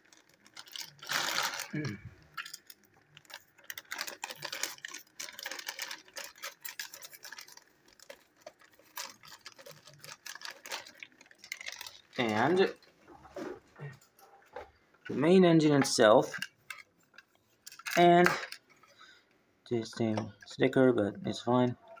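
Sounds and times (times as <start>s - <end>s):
plastic packaging crinkling: 0.0s - 13.7s, 16.3s - 19.1s.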